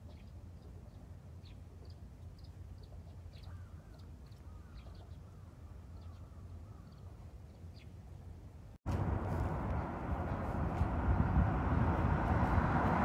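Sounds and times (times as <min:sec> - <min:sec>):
birds calling: 0:00.0 - 0:08.0
low steady rumble: 0:08.3 - 0:13.0.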